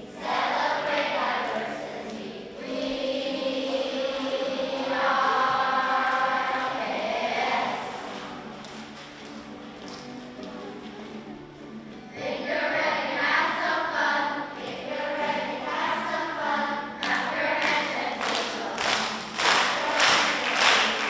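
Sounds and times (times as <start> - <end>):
children singing: 0.0 - 8.9, 12.1 - 21.0
children clapping in time: 0.9 - 11.3, 17.0 - 21.0.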